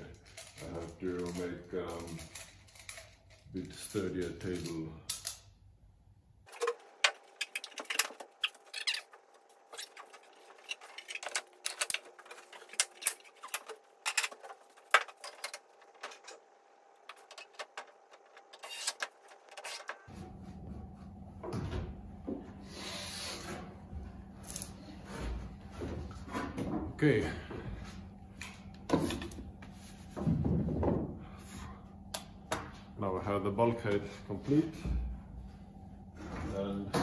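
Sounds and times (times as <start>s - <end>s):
low steady hum: 0.0s - 37.0s.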